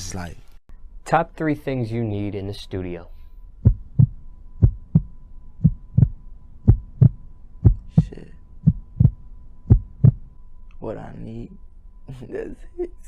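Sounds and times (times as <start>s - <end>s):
heartbeat thumping: 3.6s - 10.3s
faint steady high tone: 7.2s - 13.0s.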